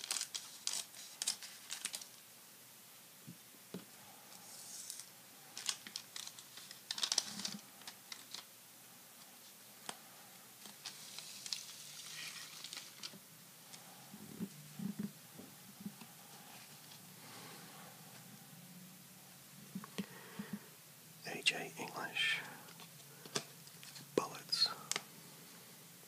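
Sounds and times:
foil wrapper crinkling: 0.0s - 2.2s, 4.8s - 8.5s, 10.6s - 13.2s.

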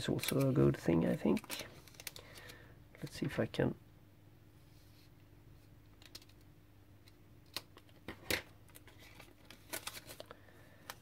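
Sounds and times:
paper handling: 8.7s - 10.4s.

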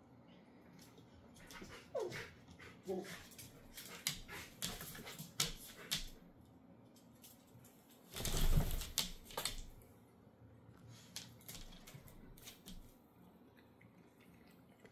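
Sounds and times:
dog claws clicking on wooden floor: 3.4s - 6.2s, 7.2s - 9.8s, 11.0s - 12.9s.

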